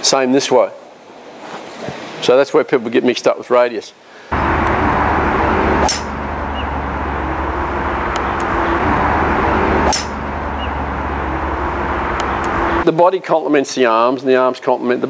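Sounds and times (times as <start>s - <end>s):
outdoor rumble and hiss: 0.0s - 13.0s.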